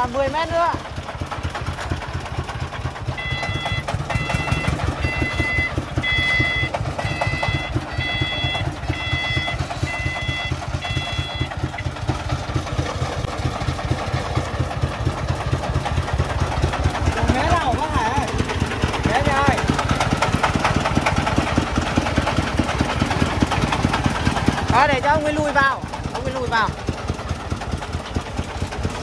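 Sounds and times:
diesel engine chugging: 0.0 - 29.0
reversing alarm beeping: 3.0 - 12.4.

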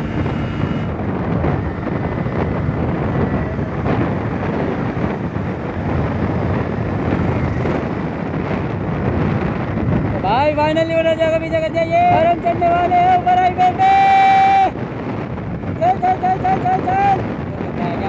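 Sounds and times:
motorcycle engine: 0.0 - 13.8
wind rushing on microphone: 0.0 - 18.0.

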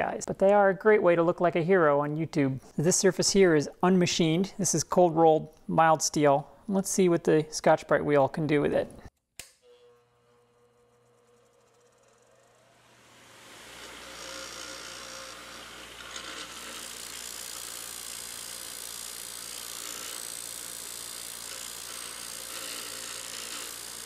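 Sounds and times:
bench grinder humming and hissing: 9.5 - 24.0.

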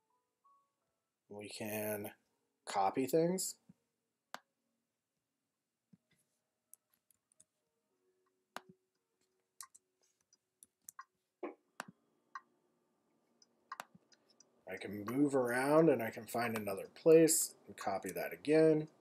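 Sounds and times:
computer mouse clicks: 13.4 - 14.5.

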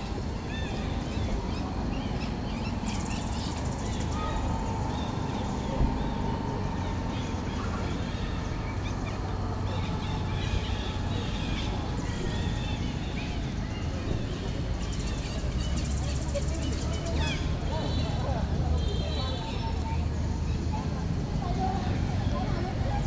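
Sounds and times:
high chirping calls: 0.4 - 14.0.

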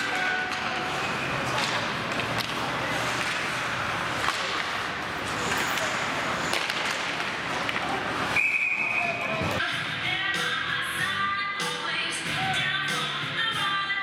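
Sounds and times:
hockey sticks and puck clacking: 0.0 - 9.6
referee's whistle: 8.3 - 9.4.

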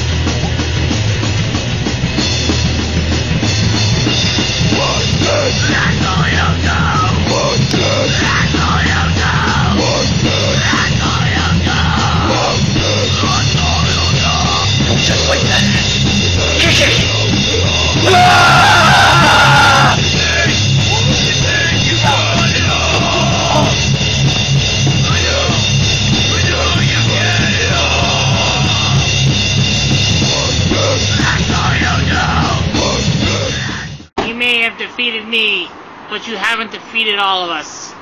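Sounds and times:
heavy rock music: 0.0 - 34.4.

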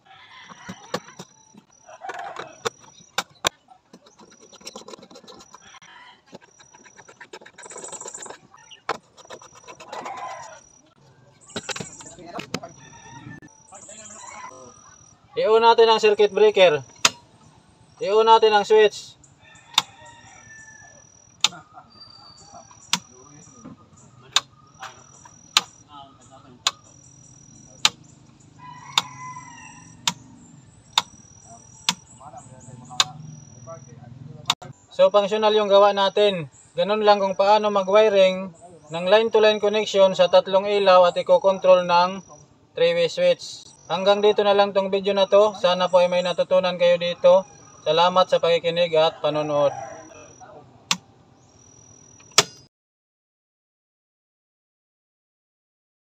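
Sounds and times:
birds calling: 0.0 - 52.7
light switches clicking: 17.0 - 17.2, 21.4 - 21.6, 33.0 - 33.2, 52.2 - 52.6.

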